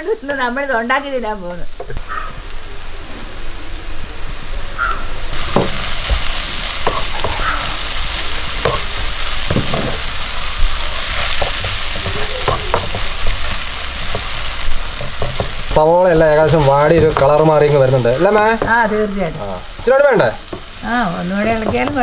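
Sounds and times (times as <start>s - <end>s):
onions sizzling in oil: 0.0s - 22.0s
spatula scraping a pan: 8.6s - 20.8s.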